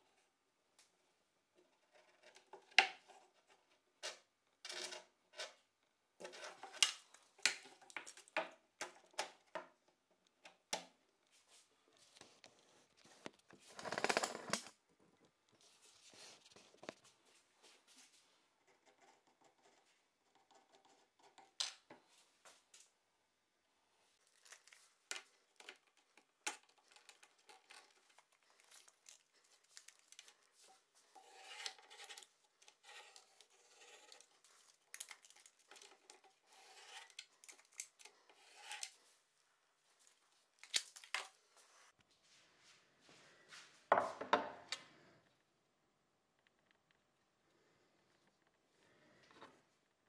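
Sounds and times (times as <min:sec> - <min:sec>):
pencil scratching on wood: 0:18.6 - 0:21.6, 0:31.1 - 0:34.4, 0:36.4 - 0:37.2.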